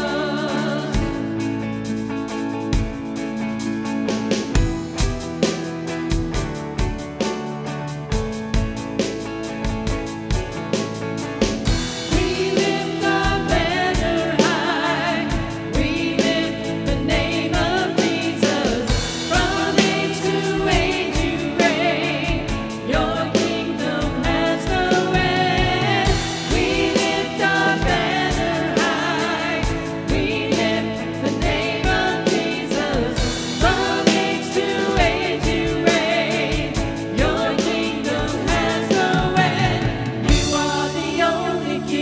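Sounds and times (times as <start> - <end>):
man and woman singing: 0.0 - 1.3, 12.0 - 42.0
electric guitar: 0.0 - 42.0.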